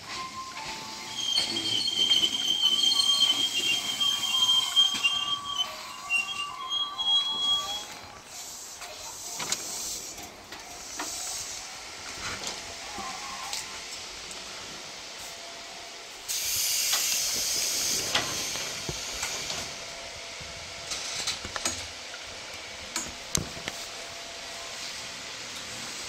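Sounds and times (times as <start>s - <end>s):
compressed air hissing: 16.3s - 19.8s.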